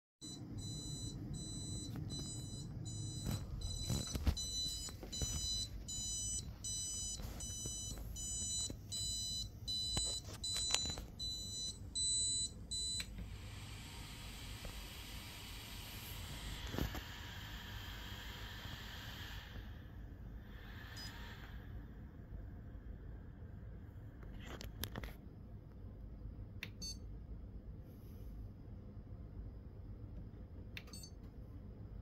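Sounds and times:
printer buzzer beeping: 0.2s - 13.1s.

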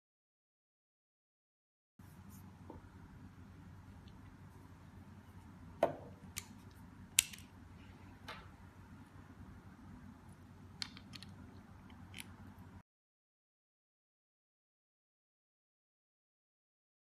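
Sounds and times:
low steady hum: 2.0s - 12.8s.

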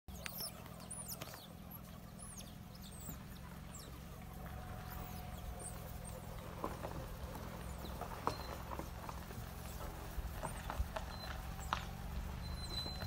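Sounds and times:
mongoose chirps: 0.1s - 4.0s
low steady hum: 0.1s - 13.0s.

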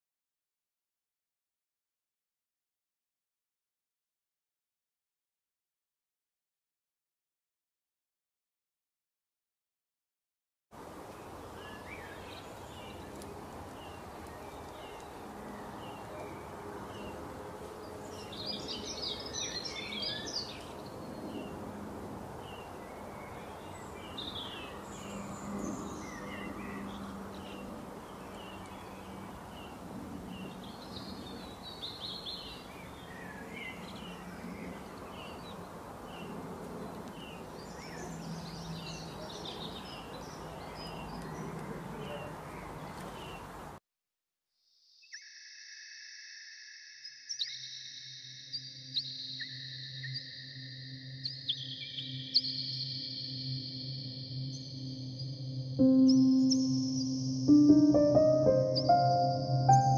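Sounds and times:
birds chirping: 49.3s - 59.9s
steady low background noise: 49.7s - 59.9s.

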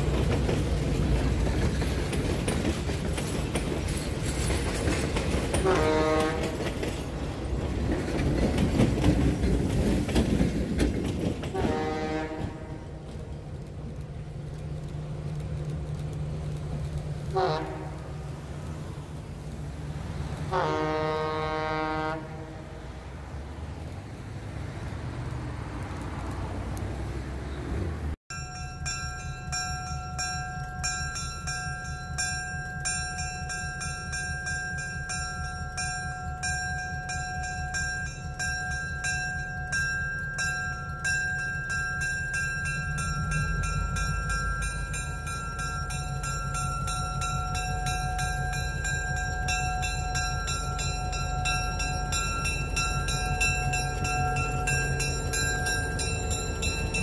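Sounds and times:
locomotive bell ringing: 0.0s - 10.4s, 28.3s - 57.0s
road traffic passing: 0.0s - 28.2s, 29.2s - 57.0s
locomotive engine rumble: 0.0s - 57.0s.

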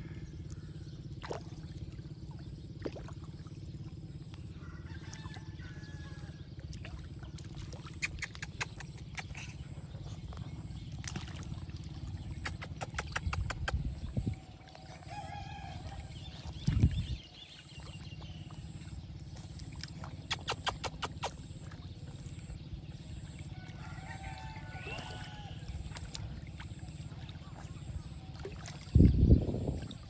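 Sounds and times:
steady low rumble: 0.0s - 30.0s
otters splashing in water: 1.1s - 30.0s
short chirping call: 7.9s - 10.2s, 19.6s - 21.8s.

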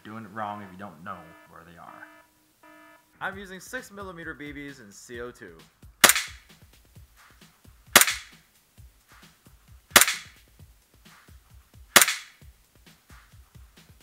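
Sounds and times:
airsoft pistol shots: 6.0s - 6.4s, 8.0s - 8.4s, 9.9s - 10.4s, 12.0s - 12.4s.

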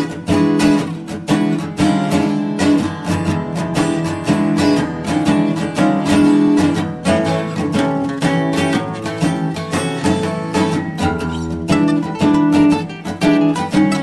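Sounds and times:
acoustic guitar strumming: 0.0s - 14.0s.

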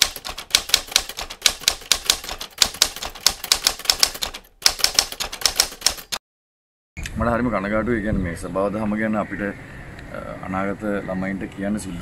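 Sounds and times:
typewriter key clicks: 0.0s - 6.2s.

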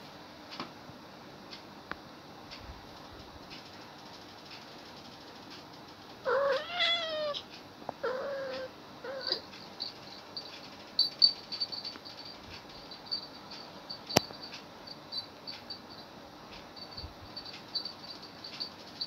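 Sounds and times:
cat meowing: 6.3s - 7.4s, 8.0s - 9.4s.

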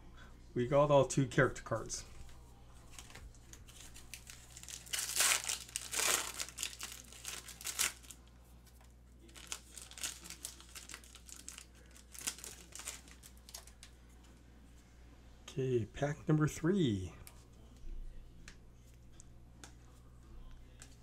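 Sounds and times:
foil wrappers crinkling: 2.9s - 14.0s.

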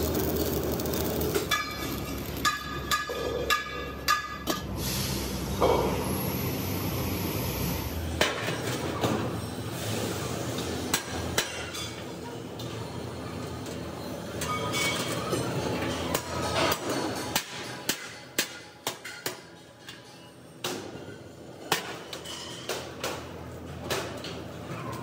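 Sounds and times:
hammer on sheet steel: 2.4s - 4.7s.

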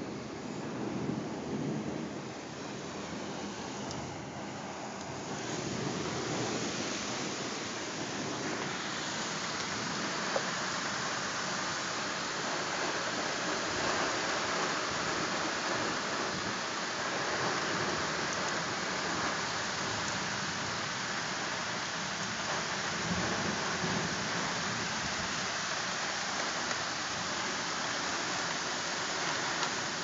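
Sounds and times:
thunder rumble: 0.0s - 16.6s
steady rain: 0.0s - 30.0s.

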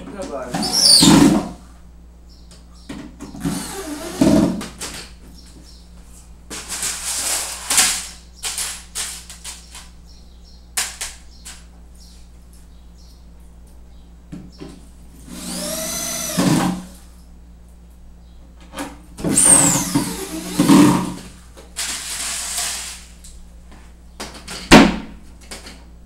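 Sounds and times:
cordless drill running: 3.4s - 4.6s, 15.2s - 17.0s, 19.3s - 21.2s, 21.8s - 23.0s.

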